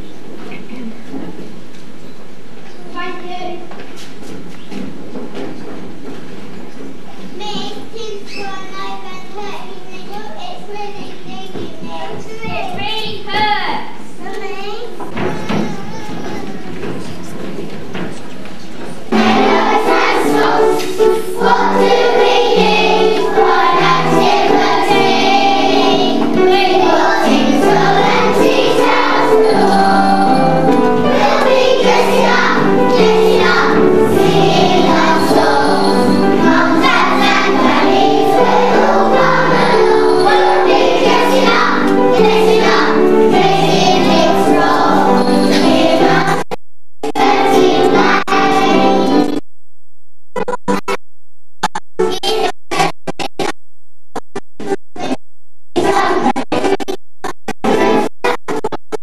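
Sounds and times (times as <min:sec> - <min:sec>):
children's choir singing: 0:18.8 - 0:46.4, 0:47.2 - 0:49.3, 0:55.8 - 0:56.6
musical accompaniment: 0:19.1 - 0:46.3.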